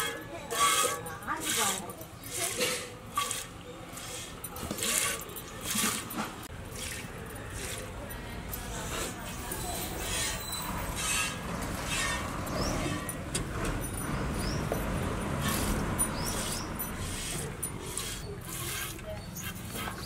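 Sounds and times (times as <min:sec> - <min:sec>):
milk squirting into metal pail: 0:06.7 - 0:07.9.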